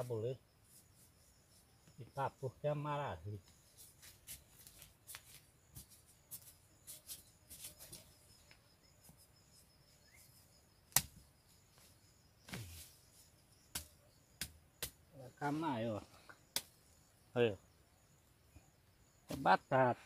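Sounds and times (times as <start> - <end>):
digging in loose soil: 10.9 - 15.9.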